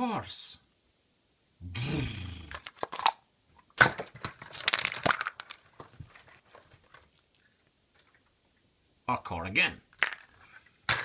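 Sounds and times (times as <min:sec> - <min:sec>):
plastic crackling and snapping: 0:02.5 - 0:07.4.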